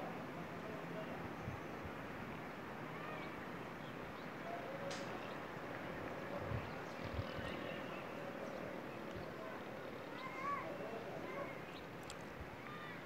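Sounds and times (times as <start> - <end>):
outdoor background hiss: 0.0 - 13.0
faint distant calls: 2.8 - 13.0.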